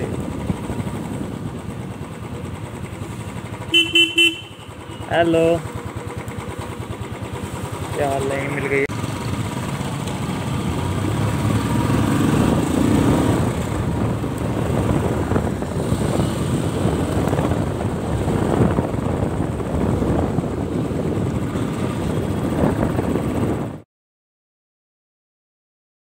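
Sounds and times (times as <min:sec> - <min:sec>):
wind rushing over microphone: 0:00.0 - 0:02.0, 0:10.2 - 0:23.8
motorcycle engine running: 0:00.0 - 0:23.8.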